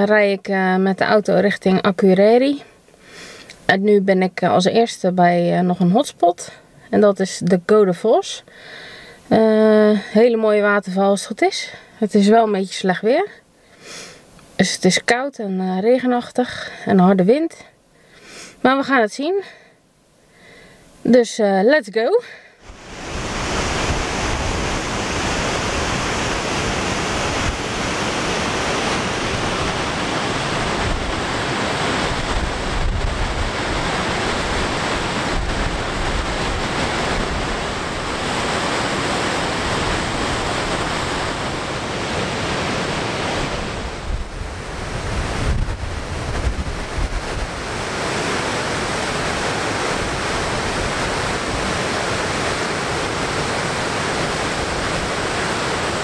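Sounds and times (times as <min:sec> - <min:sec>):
wind buffeting microphone: 0:22.6 - 0:55.8
waterfall rushing: 0:22.6 - 0:56.0.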